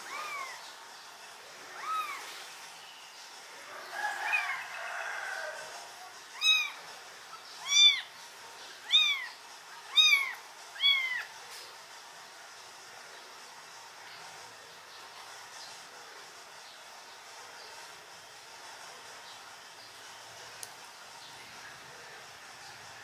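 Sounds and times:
kitten meowing: 0:01.8 - 0:02.3, 0:06.4 - 0:06.8, 0:07.6 - 0:08.1, 0:08.8 - 0:11.3.

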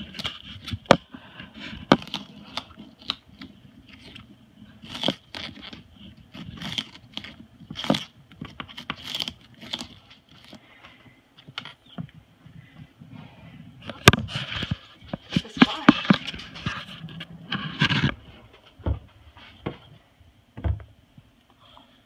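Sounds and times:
bird shredding sugarcane: 0:00.0 - 0:10.8.

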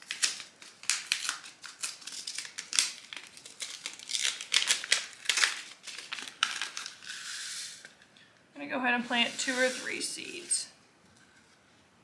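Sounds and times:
paper packet crinkling: 0:00.0 - 0:07.4.

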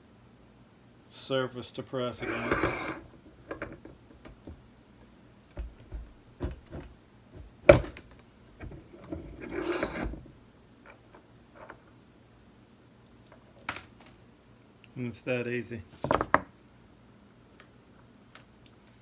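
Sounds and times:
metal scraping and rattling: 0:02.2 - 0:04.3, 0:08.6 - 0:10.3.

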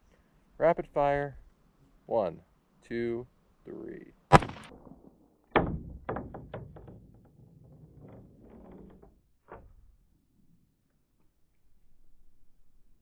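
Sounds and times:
pistol shots: 0:04.3 - 0:05.1.

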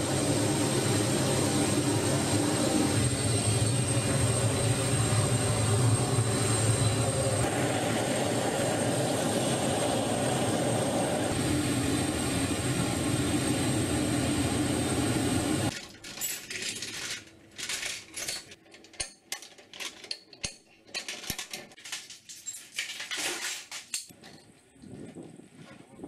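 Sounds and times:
aircraft engine noise: 0:00.0 - 0:15.8
chains rattling and clinking: 0:15.7 - 0:24.1.

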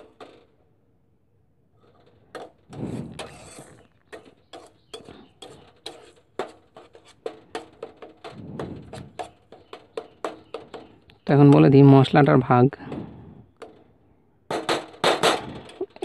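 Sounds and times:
metal spatula scraping a pan: 0:01.8 - 0:11.1.

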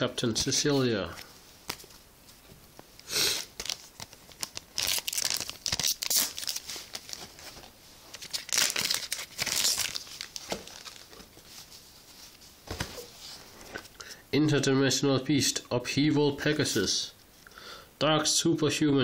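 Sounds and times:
foil pack crinkling and tearing: 0:03.4 - 0:11.2.

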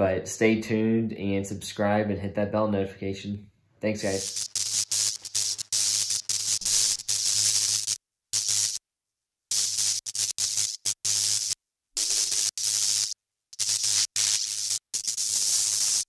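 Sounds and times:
static hiss: 0:04.0 - 0:08.8, 0:09.5 - 0:16.0.

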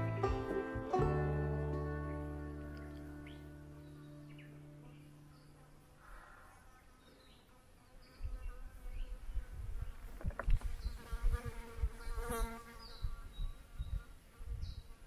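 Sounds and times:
flying insect buzzing: 0:05.4 - 0:15.0
wind rumbling on microphone: 0:08.2 - 0:15.0.

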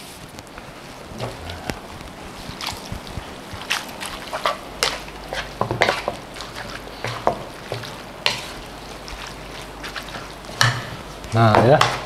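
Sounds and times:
light sizzle: 0:00.0 - 0:12.0
wooden spatula scraping pan: 0:04.2 - 0:11.0.

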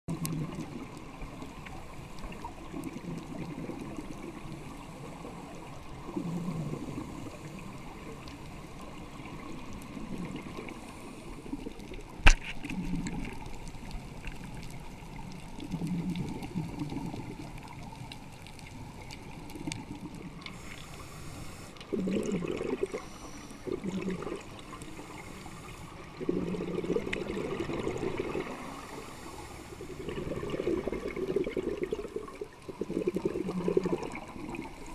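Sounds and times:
exhaled bubbles gurgling: 0:00.1 - 0:34.9
diver breathing through regulator: 0:20.4 - 0:26.8, 0:28.4 - 0:30.5.

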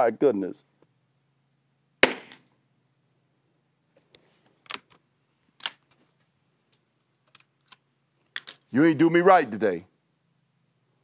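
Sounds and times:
rifle bolt clicks and knocks: 0:06.7 - 0:08.7.

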